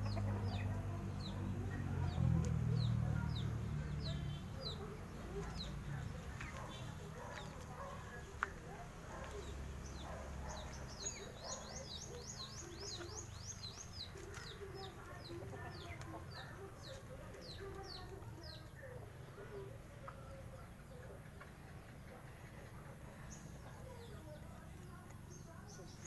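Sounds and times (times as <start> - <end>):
chicken clucking: 0.0 - 1.4.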